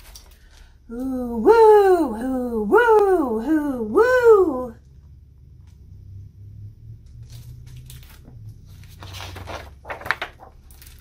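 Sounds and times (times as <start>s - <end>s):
low steady hum: 0.0s - 11.0s
book page turning: 7.2s - 11.0s.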